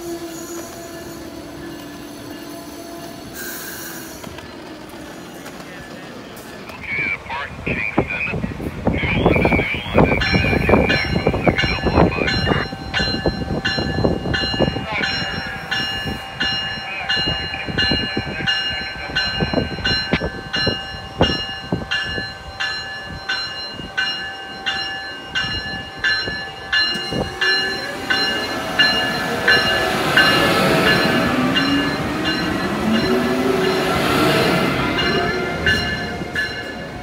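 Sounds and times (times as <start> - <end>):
locomotive bell ringing: 9.0 - 37.0.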